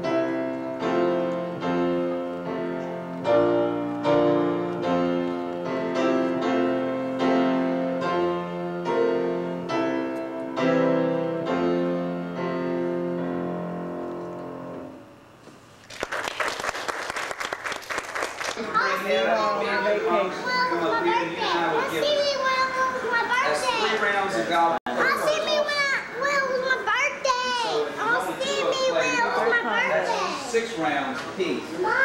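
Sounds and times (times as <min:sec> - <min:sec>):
solo piano piece: 0:00.0 - 0:15.0
audience applause: 0:15.8 - 0:18.9.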